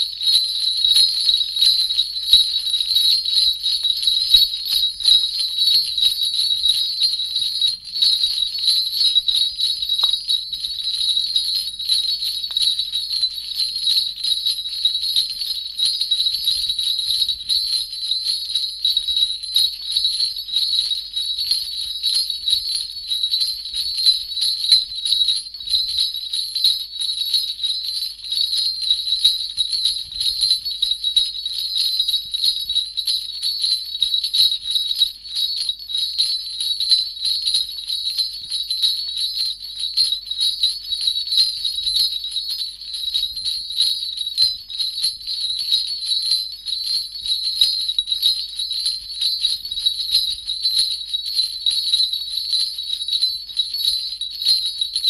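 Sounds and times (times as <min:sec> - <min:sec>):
sleigh bells jingling: 0:00.0 - 0:18.3, 0:38.4 - 0:45.8.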